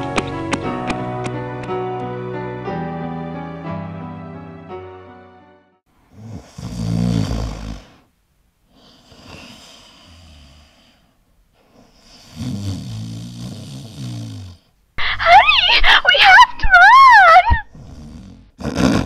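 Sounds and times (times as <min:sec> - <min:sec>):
person snoring: 0:06.1 - 0:08.1, 0:08.7 - 0:11.1, 0:11.8 - 0:15.3, 0:17.7 - 0:19.0.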